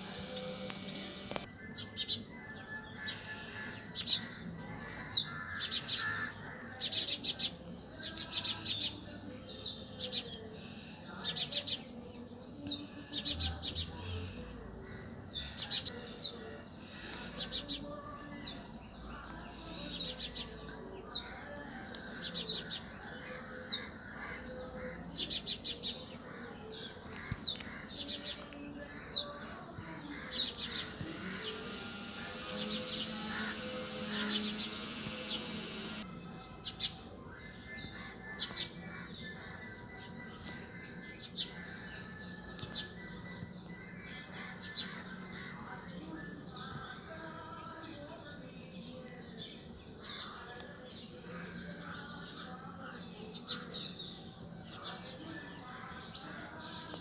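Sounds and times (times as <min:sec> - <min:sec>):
small birds chirping: 0:00.0 - 0:57.0
low background drone: 0:28.9 - 0:36.2.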